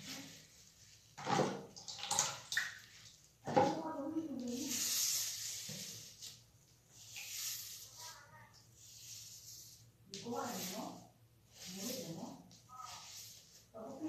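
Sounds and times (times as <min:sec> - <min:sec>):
wet hissing and squishing of hair: 0:04.0 - 0:14.0.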